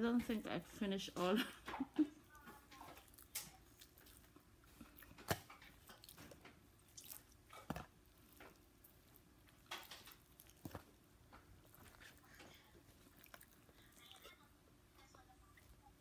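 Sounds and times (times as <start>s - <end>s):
chewing: 2.3s - 16.0s
fried chicken crust crackling: 9.6s - 10.7s.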